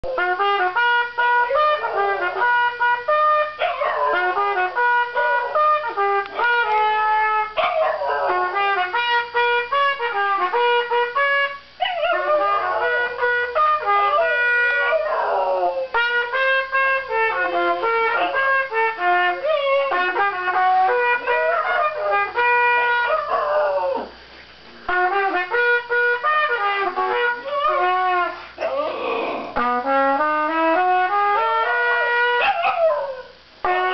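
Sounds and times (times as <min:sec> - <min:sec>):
trumpet playing: 0:00.0 - 0:33.9
small dog howling: 0:14.1 - 0:15.9, 0:31.7 - 0:33.4.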